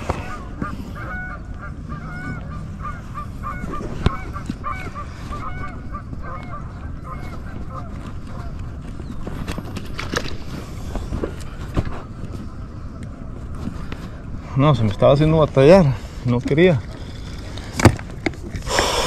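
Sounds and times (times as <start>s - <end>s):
geese honking: 0.0s - 8.8s.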